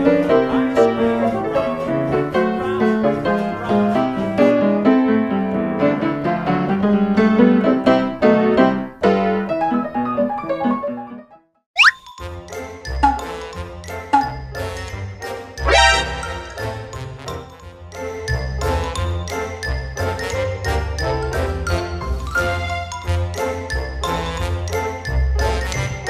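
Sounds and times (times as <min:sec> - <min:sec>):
piano music: 0:00.0 - 0:11.2, 0:13.0 - 0:17.4.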